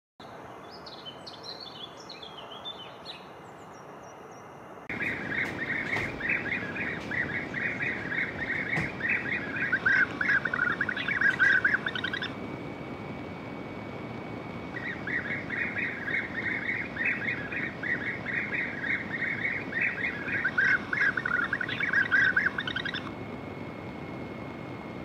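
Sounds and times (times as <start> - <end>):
steady background hiss: 0.2 - 25.0
bee-eaters calling: 4.9 - 12.5, 13.4 - 23.1.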